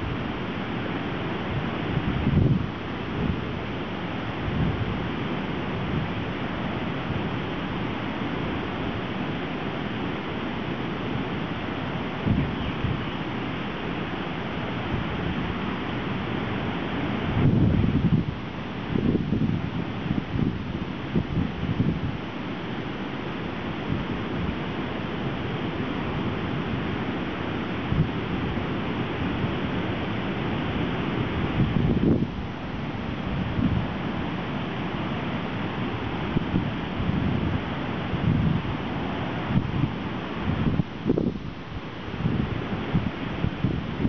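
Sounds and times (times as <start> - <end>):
wind buffeting microphone: 1.5 - 3.6, 17.2 - 22.2, 29.3 - 34.9, 35.6 - 44.0.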